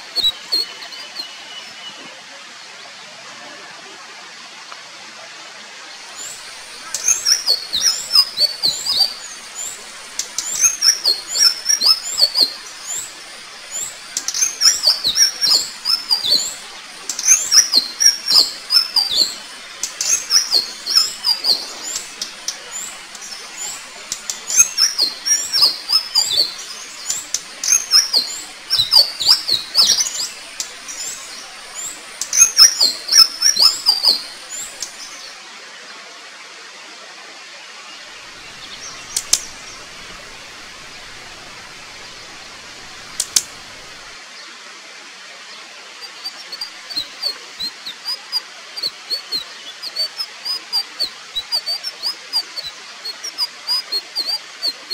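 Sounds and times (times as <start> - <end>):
steady hiss: 5.8 - 35.6, 37.8 - 54.9.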